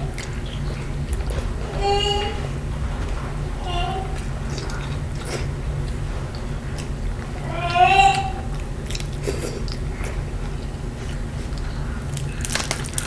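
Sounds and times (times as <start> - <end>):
chewing and mouth sounds: 0.0 - 1.7, 4.0 - 13.0
steady low hum: 0.0 - 13.0
small child calling: 1.7 - 2.6, 3.6 - 4.2, 7.4 - 8.6.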